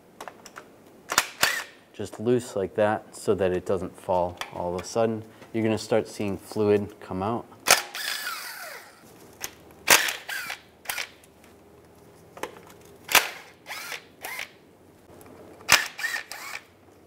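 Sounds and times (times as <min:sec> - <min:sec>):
electric ratchet whirring: 0:01.1 - 0:01.8, 0:07.7 - 0:09.0, 0:09.9 - 0:11.2, 0:13.1 - 0:14.6, 0:15.7 - 0:16.7.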